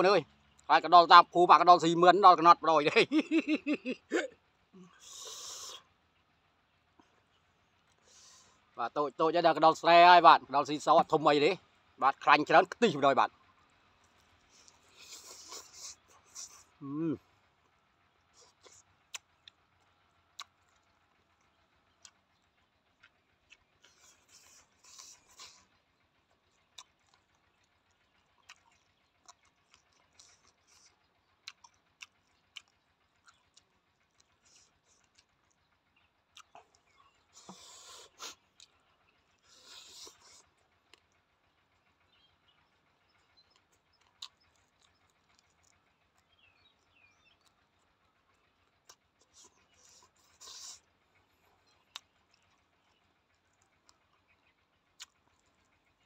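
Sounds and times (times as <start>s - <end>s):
mouth clicks of eating: 14.0s - 16.8s, 18.4s - 25.7s, 26.3s - 35.7s, 36.3s - 41.9s, 43.0s - 56.0s
person chewing: 14.0s - 16.8s, 18.3s - 19.6s, 20.2s - 22.4s, 23.0s - 35.6s, 36.3s - 41.2s, 43.4s - 47.9s, 48.7s - 54.3s, 54.9s - 55.7s
bird chirps: 20.5s - 56.0s.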